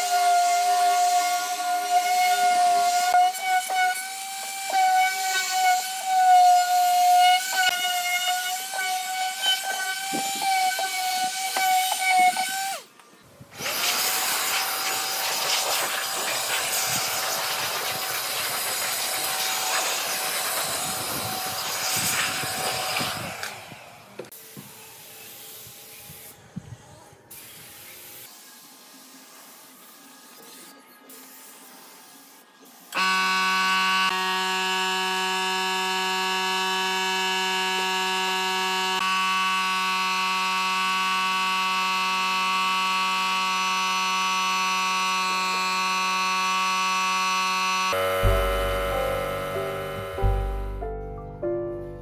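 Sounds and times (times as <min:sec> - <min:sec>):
electric sander running on wood: 0:00.0 - 0:12.8, 0:13.6 - 0:24.3, 0:32.9 - 0:50.8
compressed air blow gun hissing: 0:13.6 - 0:24.2
spray gun hissing: 0:13.8 - 0:24.2.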